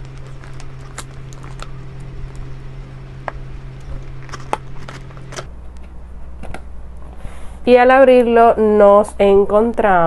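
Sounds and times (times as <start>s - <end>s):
plastic tape peeling crackles: 0.0s - 5.5s
steady low hum: 0.0s - 10.0s.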